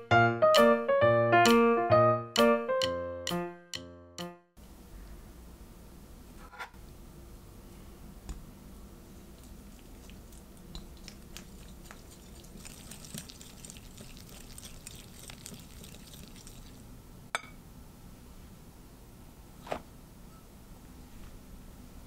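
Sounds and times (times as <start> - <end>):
whisk beating butter in a bowl: 9.4 - 16.8.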